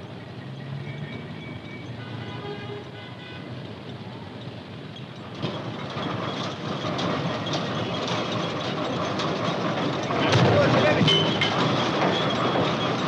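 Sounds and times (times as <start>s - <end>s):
city street traffic: 0.0s - 13.0s
construction machinery clattering: 3.8s - 13.0s.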